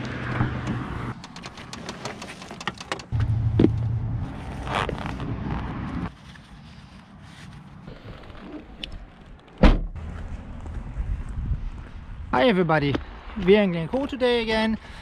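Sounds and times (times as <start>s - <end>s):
sharp clicks: 0.0s - 3.2s
low engine-like hum: 3.1s - 4.5s.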